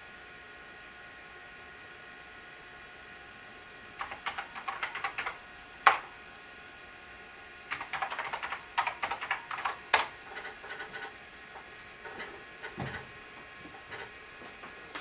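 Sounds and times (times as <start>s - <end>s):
keyboard typing: 4.0s - 6.1s, 7.7s - 11.1s.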